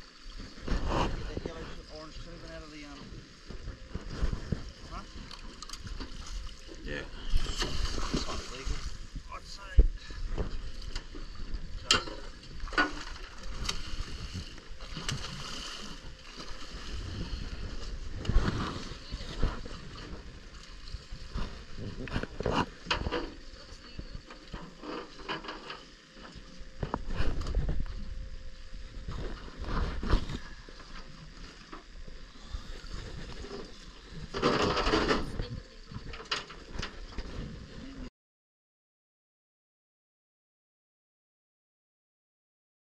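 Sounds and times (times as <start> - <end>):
wind and water hiss: 0.0 - 38.1.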